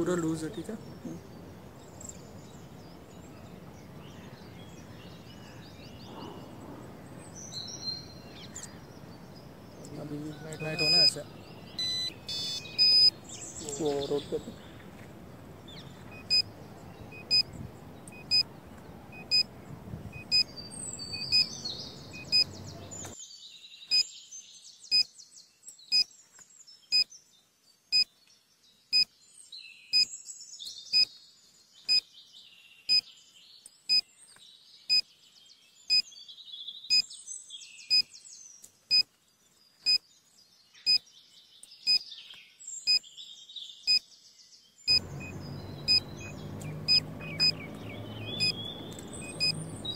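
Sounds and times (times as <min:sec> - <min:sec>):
birds chirping: 0:00.0 - 0:49.9
low outdoor background: 0:00.0 - 0:49.9
electronic beeps: 0:10.5 - 0:11.2, 0:11.8 - 0:13.2, 0:16.2 - 0:16.5, 0:17.1 - 0:17.5, 0:18.1 - 0:18.4, 0:19.2 - 0:19.5, 0:20.2 - 0:20.5, 0:21.2 - 0:21.5, 0:22.2 - 0:22.5, 0:44.9 - 0:46.2, 0:46.8 - 0:47.6, 0:48.4 - 0:48.6, 0:49.2 - 0:49.6.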